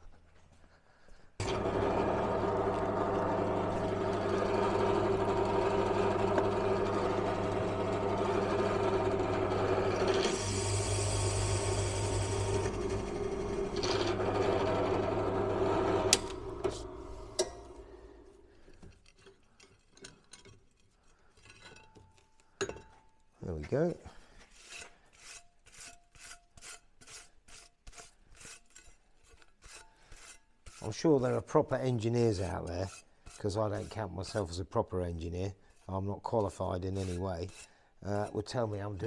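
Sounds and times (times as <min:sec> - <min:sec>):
drill motor running: 0:01.4 - 0:17.9
hole saw grinding metal: 0:01.4 - 0:18.1, 0:24.6 - 0:35.0, 0:35.8 - 0:39.0.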